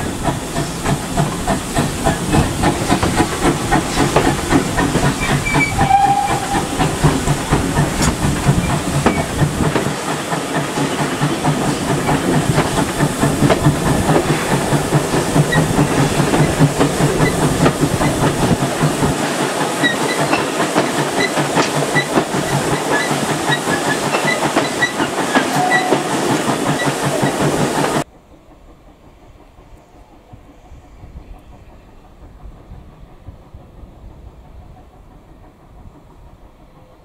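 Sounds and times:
steam hiss: 0.0 - 28.1
distant train: 0.0 - 37.0
steam locomotive exhaust beat: 0.0 - 37.0.

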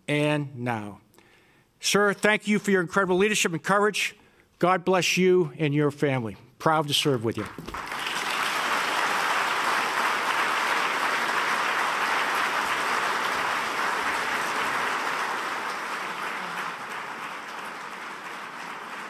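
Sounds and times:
audience applauding: 7.3 - 19.0.

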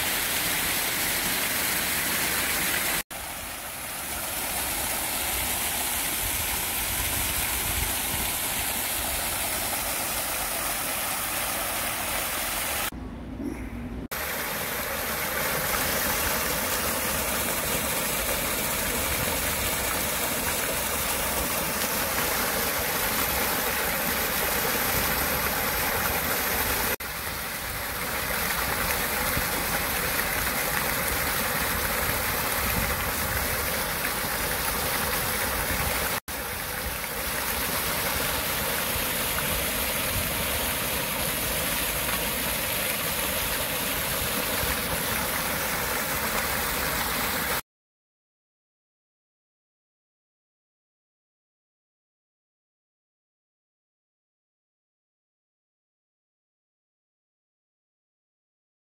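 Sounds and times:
waterfall splashing into pond: 0.0 - 13.0, 14.0 - 47.6.

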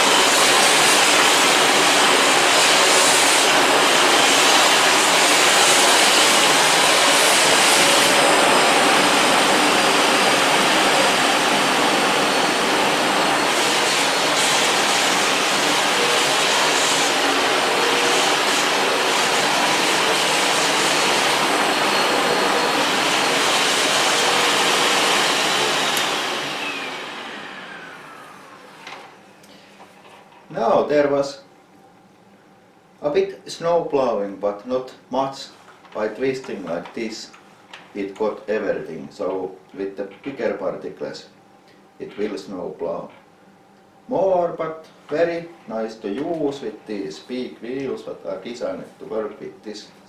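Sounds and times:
vacuum cleaner running: 0.0 - 29.2.

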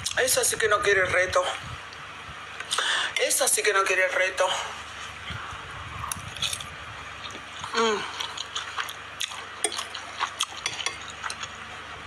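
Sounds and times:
chewing: 5.9 - 11.7
woman humming: 7.7 - 8.2
fork clicking on bowl: 9.2 - 11.5.

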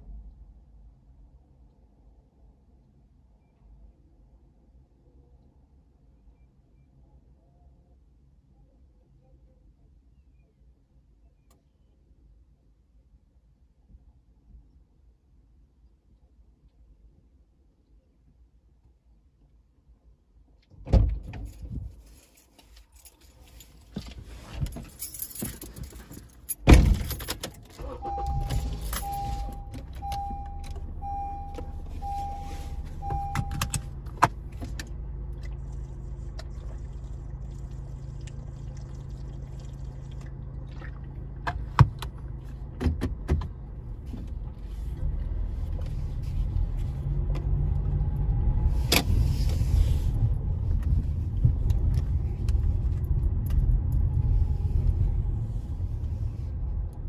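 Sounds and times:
keys jangling: 22.0 - 27.8, 28.4 - 29.6
car engine starting and idling: 23.6 - 57.0
car door shutting: 26.7 - 34.8
warning chime beeping: 27.8 - 33.8.

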